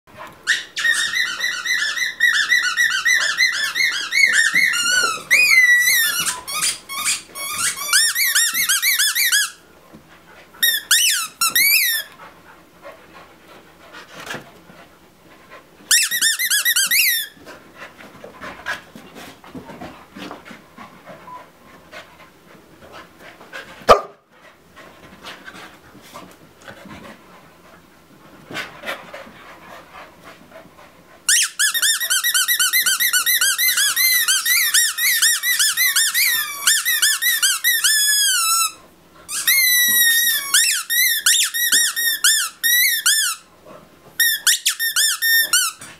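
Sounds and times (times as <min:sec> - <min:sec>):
rubber squeaky toy squeezed: 0:00.5 - 0:09.6, 0:10.6 - 0:12.1, 0:15.9 - 0:17.4, 0:31.3 - 0:43.5, 0:44.2 - 0:45.8.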